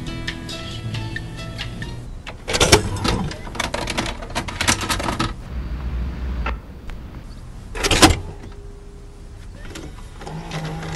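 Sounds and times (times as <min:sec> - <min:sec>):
tape machine clunk: 0:00.2 - 0:05.4, 0:07.7 - 0:10.9
plastic clicks and clatter: 0:02.3 - 0:05.4
low motor hum: 0:05.3 - 0:10.9.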